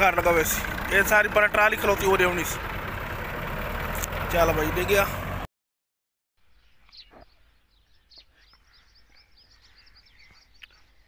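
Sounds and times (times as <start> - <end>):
tractor engine running: 0.0 - 5.5
small birds chirping: 6.4 - 11.0.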